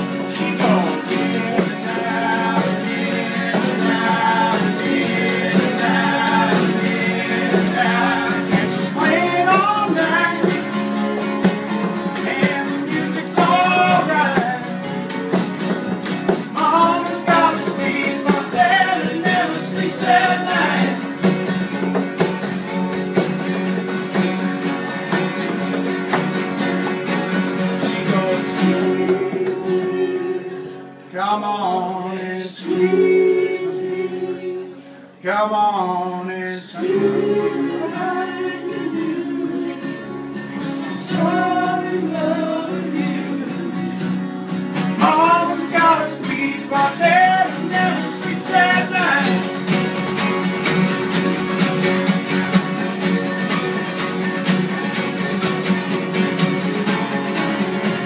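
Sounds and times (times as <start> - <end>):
person singing: 0.0 - 11.0, 12.1 - 14.9, 16.4 - 21.2, 27.6 - 40.2, 40.8 - 44.2, 45.0 - 49.4
live band music: 0.0 - 31.1, 43.2 - 58.0.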